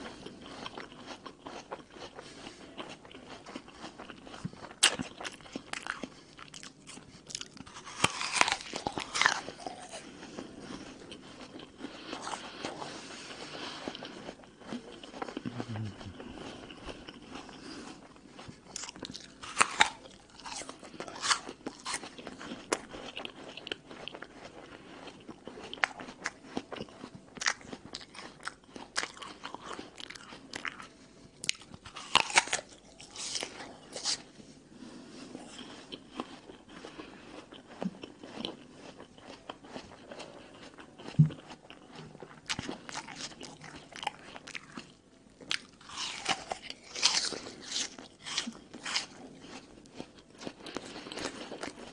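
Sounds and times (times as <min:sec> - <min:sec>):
chewing: 0:00.0 - 0:34.3, 0:35.1 - 0:51.9
apple crunching bites: 0:03.0 - 0:10.0, 0:18.6 - 0:23.4, 0:31.4 - 0:34.3, 0:40.7 - 0:51.8.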